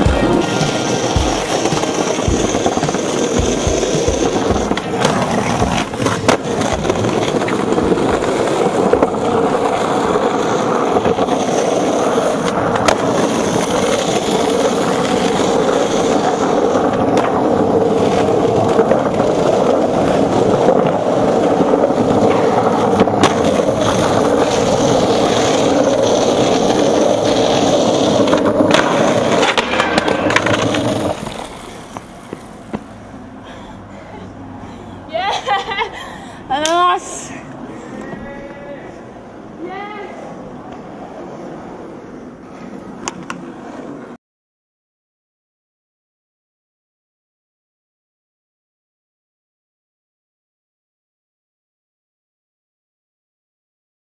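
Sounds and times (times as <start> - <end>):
skateboard knocks: 0.0 - 8.2, 27.6 - 32.9
skateboard wheels rolling on pavement: 0.0 - 44.2.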